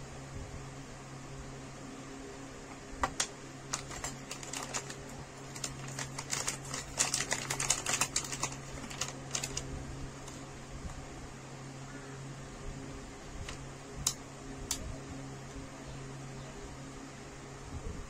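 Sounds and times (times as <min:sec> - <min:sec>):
steady low hum: 0:00.0 - 0:18.0
small plastic parts clicking: 0:03.0 - 0:09.6
plastic zip bag crinkling: 0:03.1 - 0:10.4.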